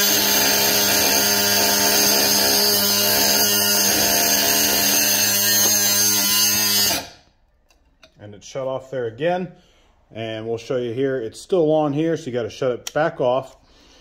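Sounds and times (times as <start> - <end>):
die grinder cutting metal tubing: 0.0 - 7.2.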